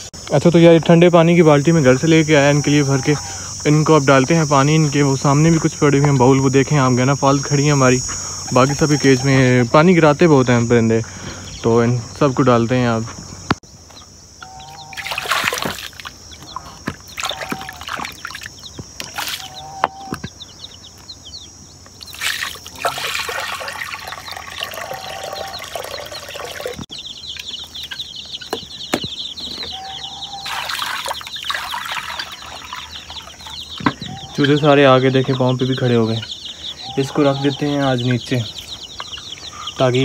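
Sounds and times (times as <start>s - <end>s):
chickens clucking: 0.0s - 40.0s
high insect drone: 0.0s - 40.0s
water splashing into a bowl: 15.0s - 16.2s, 17.1s - 19.5s, 22.0s - 26.8s, 30.4s - 33.6s.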